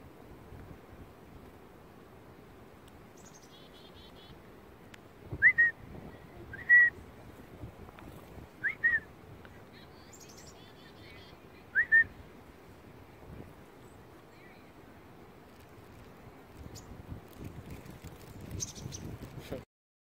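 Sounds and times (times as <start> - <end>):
chickadee calls: 3.2 - 4.5, 8.6 - 12.2, 18.3 - 19.1
loud whistled bird notes: 11.7 - 12.1.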